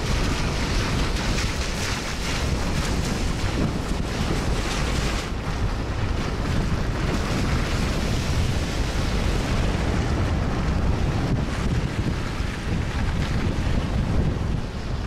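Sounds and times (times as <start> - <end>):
car driving low rumble: 0.0 - 15.0
wind rushing over microphone: 0.0 - 15.0.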